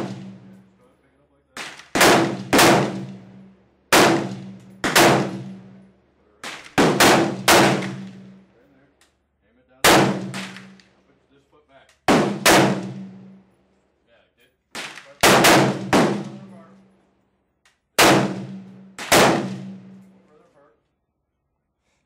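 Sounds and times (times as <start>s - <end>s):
gunshots with echoing tail: 0.0s - 0.6s, 1.6s - 5.8s, 6.4s - 8.4s, 9.8s - 10.8s, 12.1s - 13.4s, 14.7s - 16.7s, 18.0s - 20.2s.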